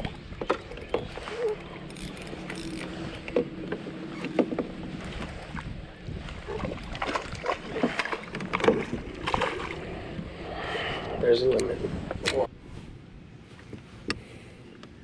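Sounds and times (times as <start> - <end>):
gear knocking against kayak: 0.0 - 5.7, 6.4 - 9.7.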